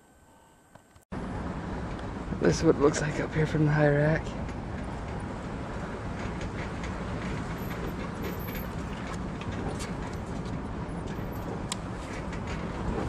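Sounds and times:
truck rumbling on dirt road: 1.2s - 13.0s
rattles and knocks: 4.3s - 13.0s.

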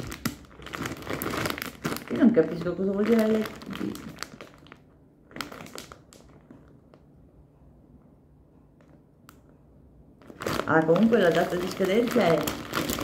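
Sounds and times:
plastic bag crinkling: 0.0s - 7.0s, 10.2s - 13.0s.

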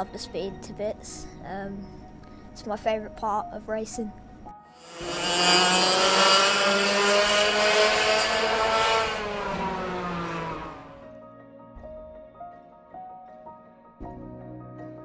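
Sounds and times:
soft music: 0.0s - 4.7s, 10.8s - 15.0s
kart engine running: 4.8s - 11.0s.

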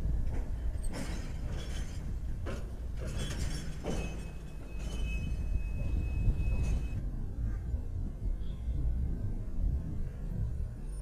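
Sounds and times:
train rolling by rumbling: 0.0s - 11.0s
metallic clanks: 0.3s - 7.0s
high-pitched wheel squeal: 4.0s - 7.0s.

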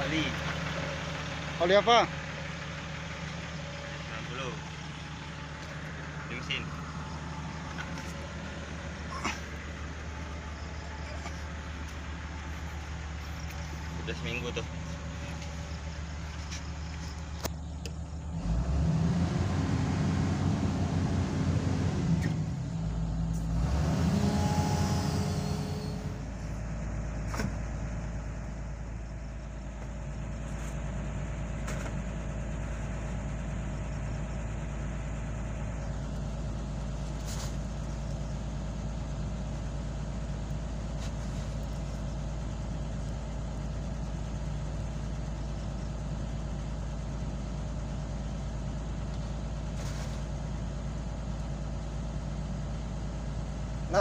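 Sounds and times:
excavator diesel engine running: 0.0s - 54.0s.

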